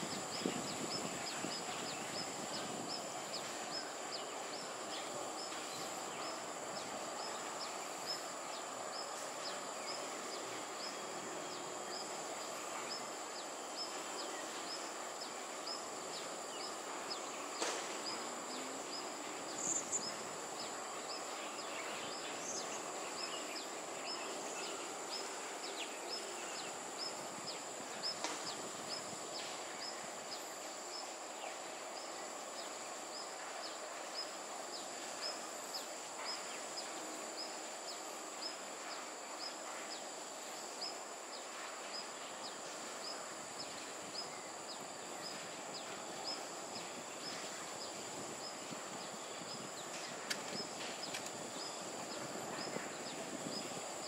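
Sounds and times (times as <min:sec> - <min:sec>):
background hiss: 0:00.0 - 0:54.0
insects droning: 0:00.0 - 0:54.0
faint clicks: 0:49.9 - 0:51.4.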